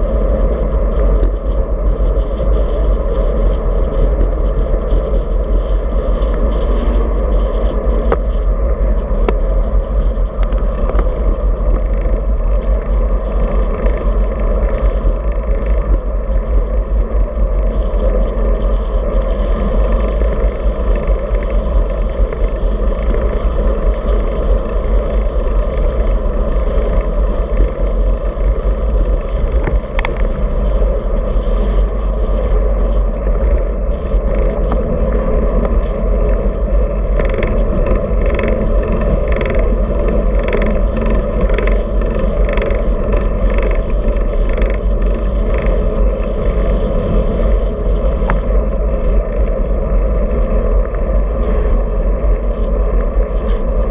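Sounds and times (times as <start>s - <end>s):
tyres humming on asphalt: 0.0s - 53.9s
wind rushing over microphone: 0.0s - 53.9s
bike click: 35.6s - 46.2s.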